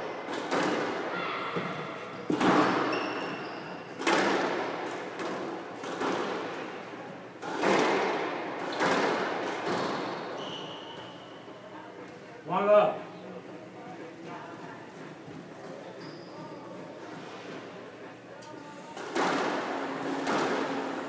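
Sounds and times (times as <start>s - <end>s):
squash ball hitting rackets and walls: 0.2s - 6.7s, 7.4s - 10.9s, 19.0s - 21.0s.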